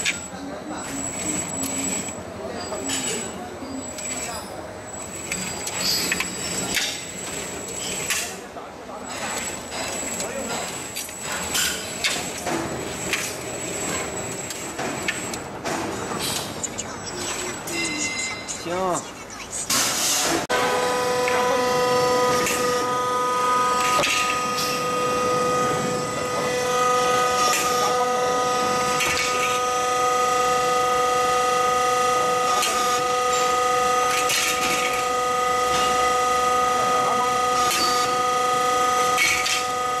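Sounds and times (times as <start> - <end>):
machine whine: 0.0 - 8.4, 20.5 - 40.0.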